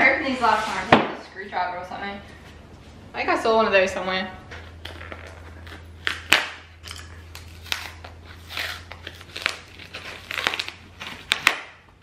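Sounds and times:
cardboard being ripped: 7.3 - 11.8.

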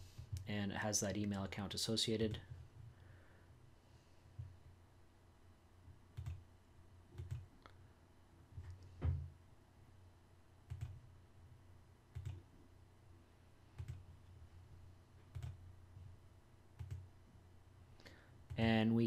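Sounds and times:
computer mouse clicks: 7.2 - 7.5, 10.7 - 11.0, 12.1 - 12.4, 13.8 - 14.0.

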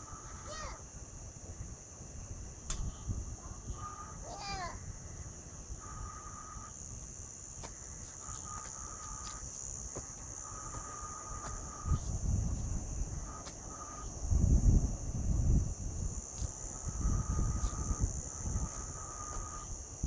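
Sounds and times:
insects buzzing: 0.0 - 20.0
low insect trill: 0.0 - 20.0.

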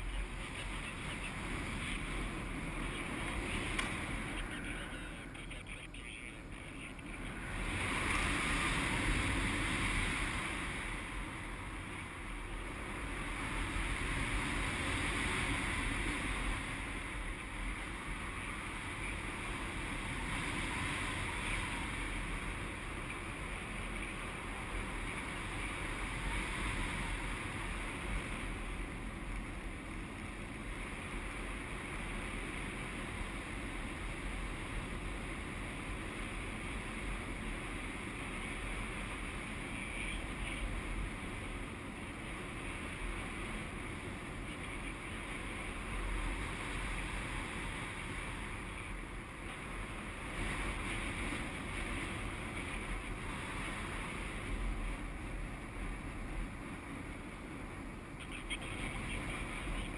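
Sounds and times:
wind rushing over camera: 0.0 - 59.9.

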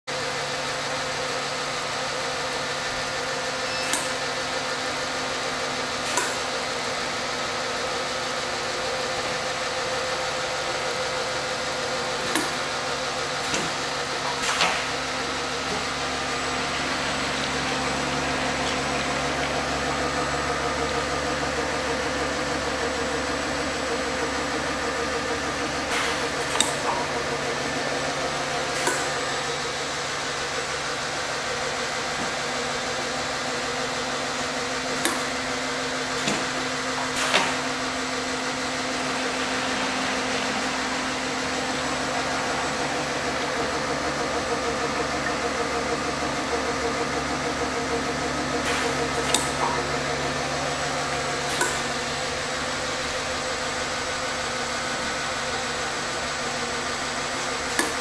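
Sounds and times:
machine hum: 0.1 - 58.0.

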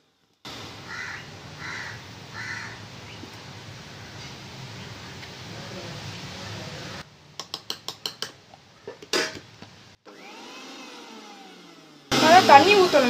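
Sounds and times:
spoon tapping steel jar: 7.4 - 8.4
steel lid clattering: 7.7 - 9.5.

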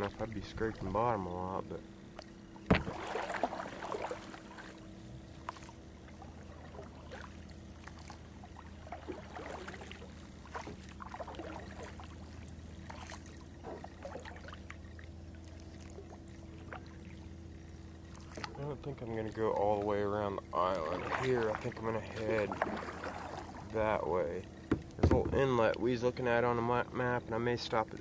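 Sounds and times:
paddle splashing in water: 0.0 - 1.0, 2.1 - 17.4, 18.0 - 25.8
steady low hum: 0.0 - 28.0
water dripping off paddle: 5.4 - 17.2.

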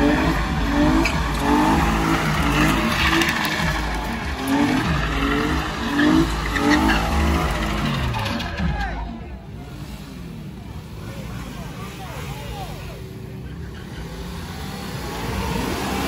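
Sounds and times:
car engine revving: 0.0 - 16.0
tyres squealing: 0.3 - 9.3.

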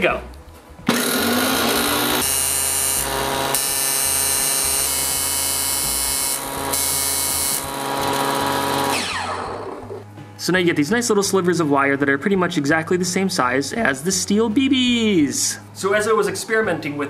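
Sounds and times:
table saw whine: 0.9 - 10.0.

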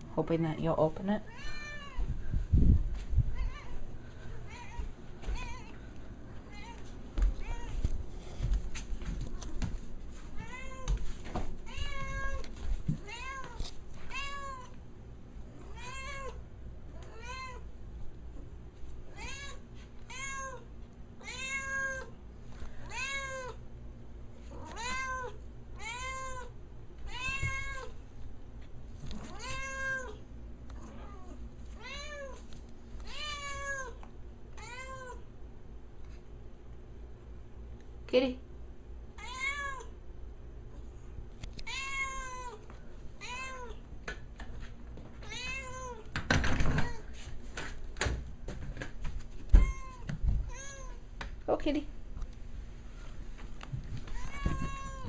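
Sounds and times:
cat meowing: 1.3 - 2.1, 15.7 - 16.4, 21.2 - 22.1, 24.6 - 26.5, 27.1 - 27.9, 29.3 - 30.2, 39.2 - 39.9, 41.6 - 42.6, 49.6 - 51.0, 54.2 - 55.0.

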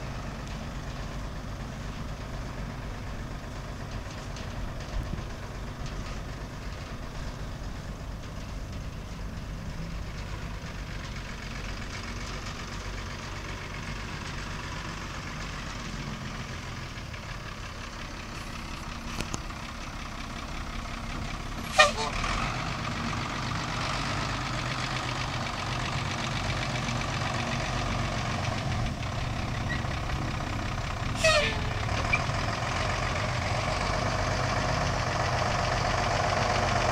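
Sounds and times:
diesel truck engine running: 0.0 - 36.9.

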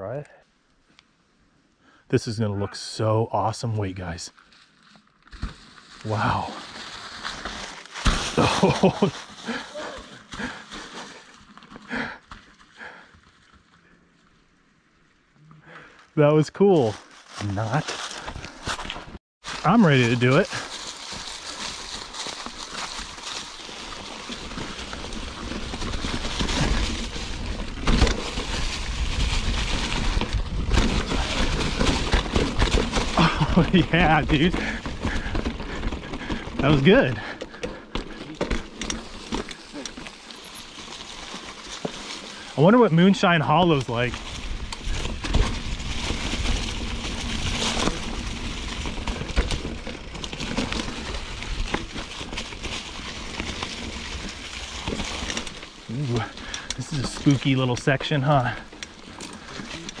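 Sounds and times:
bike tyres rumbling on dirt: 4.1 - 60.0
bike clicks and knocks: 37.3 - 40.7.

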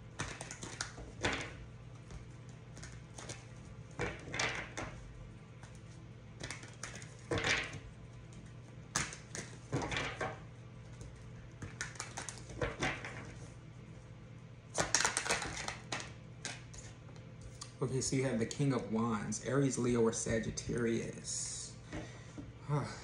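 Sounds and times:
cards rustling and tapping: 0.0 - 13.5, 14.7 - 17.3
steady low hum: 0.0 - 23.0.

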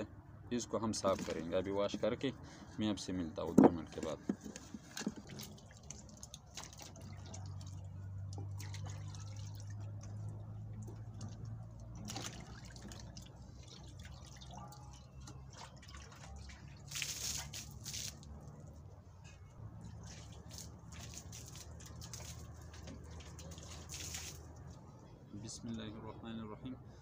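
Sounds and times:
water splashing in metal pot: 5.4 - 11.0.

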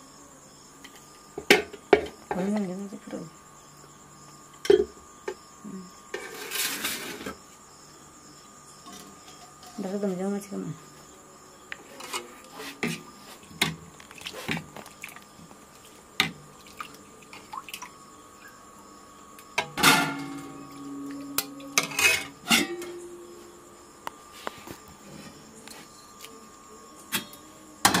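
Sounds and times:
metal clangs ringing: 19.6 - 20.7, 21.3 - 23.1.

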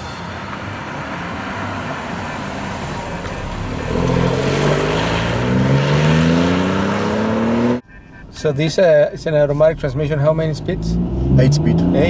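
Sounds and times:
car engine accelerating: 0.0 - 12.0
road noise: 0.0 - 12.0.

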